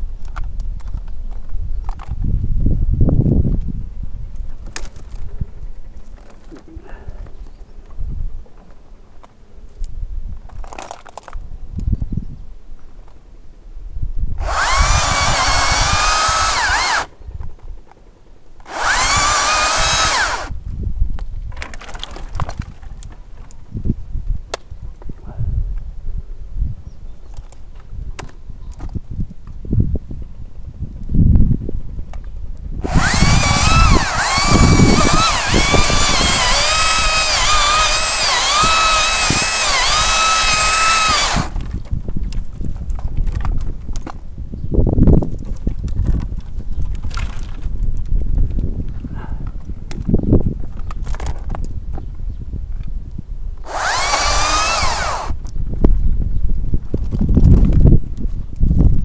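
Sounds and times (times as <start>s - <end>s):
branches crackling and knocking: 4.4s - 6.7s, 10.4s - 11.4s, 21.2s - 23.6s
electric chainsaw cutting branches: 14.4s - 17.2s, 18.6s - 20.6s, 32.8s - 41.9s, 53.6s - 55.4s.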